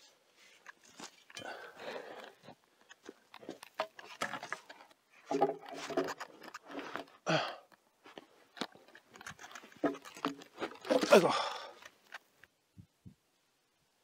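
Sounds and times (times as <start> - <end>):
man breathing hard and grunting: 7.2 - 7.7, 11.1 - 11.8.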